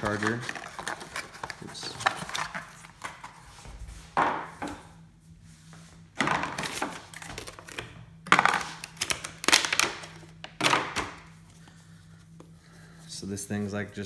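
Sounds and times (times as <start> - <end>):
packaging rustling and clattering: 0.0 - 3.4, 6.2 - 11.1.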